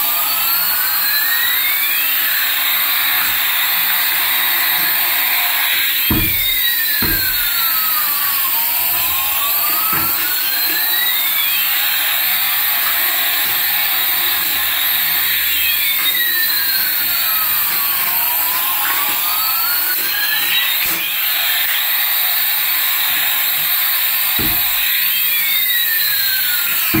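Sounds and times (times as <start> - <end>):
small electric motors whirring: 0.0 - 27.0.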